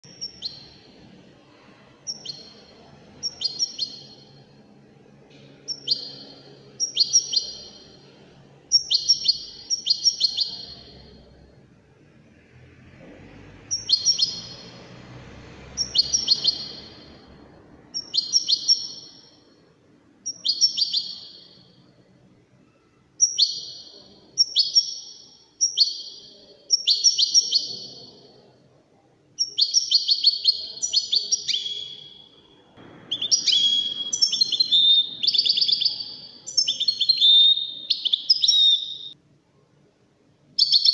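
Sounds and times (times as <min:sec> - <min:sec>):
finch twittering song: 0:00.0 - 0:00.9, 0:02.1 - 0:04.6, 0:05.6 - 0:11.4, 0:13.6 - 0:19.5, 0:20.2 - 0:21.8, 0:23.2 - 0:28.4, 0:29.4 - 0:32.4, 0:33.1 - 0:39.2, 0:40.6 - 0:40.9.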